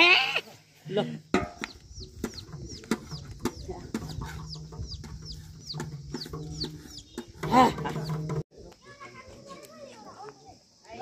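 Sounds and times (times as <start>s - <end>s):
chickens peeping: 1.6s - 8.4s.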